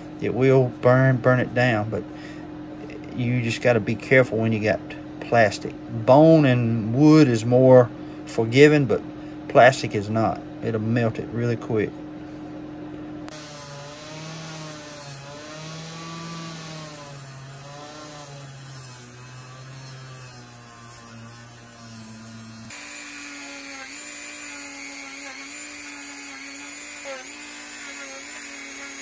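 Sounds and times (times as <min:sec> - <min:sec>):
bench grinder motor whine: 0:12.3 - 0:29.0
rotary tool high whine: 0:13.2 - 0:29.0.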